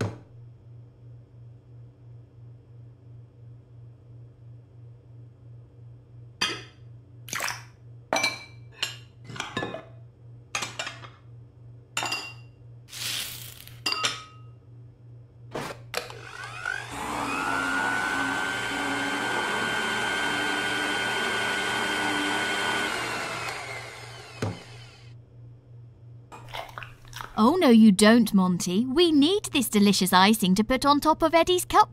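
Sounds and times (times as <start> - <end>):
electric mixer whining: 16.0 - 25.1.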